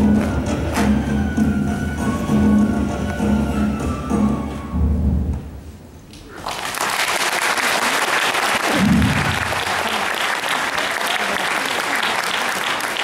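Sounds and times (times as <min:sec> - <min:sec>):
audience applause: 0:06.3 - 0:13.0.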